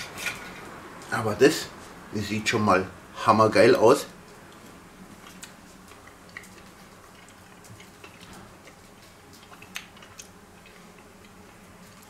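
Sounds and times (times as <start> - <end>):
low steady hum: 0.0 - 12.0
mouth clicks chewing: 4.5 - 12.0.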